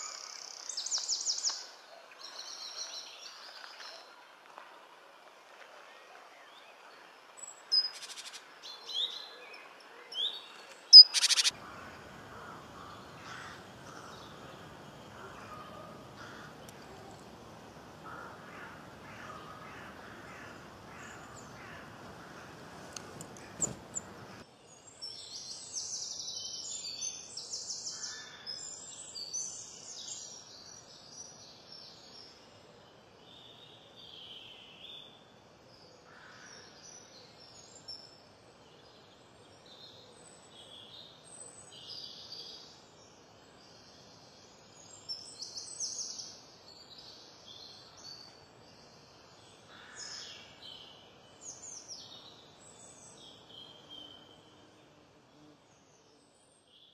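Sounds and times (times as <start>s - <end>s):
songbirds chirping: 0.0s - 56.9s.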